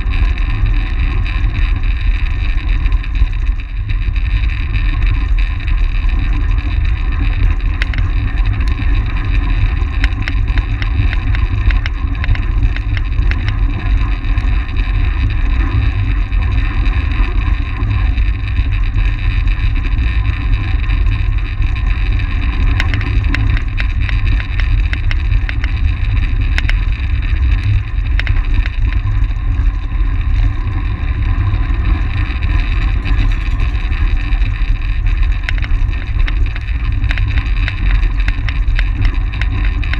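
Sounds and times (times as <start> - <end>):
bicycle tyre noise: 0.0 - 39.9
wind rushing over microphone: 0.0 - 39.9
faint clicks: 7.2 - 13.8, 22.5 - 29.1, 35.1 - 39.9.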